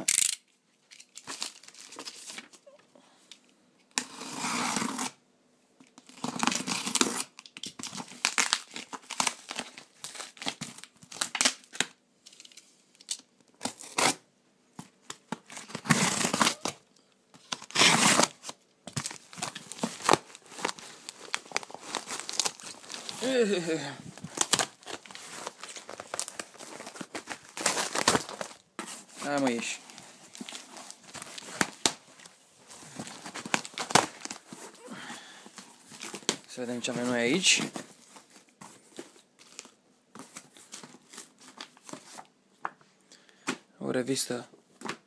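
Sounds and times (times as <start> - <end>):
packing tape ripping off cardboard: 3.9 - 5.2, 6.0 - 14.2, 15.1 - 16.8, 17.4 - 32.2, 33.0 - 34.9.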